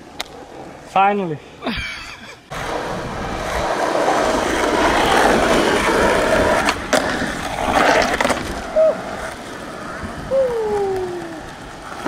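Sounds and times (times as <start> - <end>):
skateboard wheels rolling on asphalt: 0.0 - 1.4, 2.5 - 12.0
skateboard clacks: 2.5 - 12.0
skateboard trucks grinding: 2.5 - 12.0.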